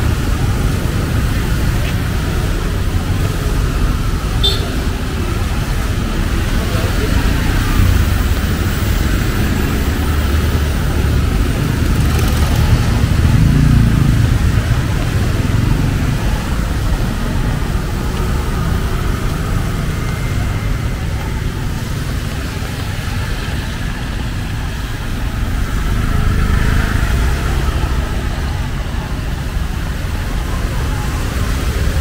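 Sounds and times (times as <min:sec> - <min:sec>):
traffic passing on wet road: 0:00.0 - 0:32.0.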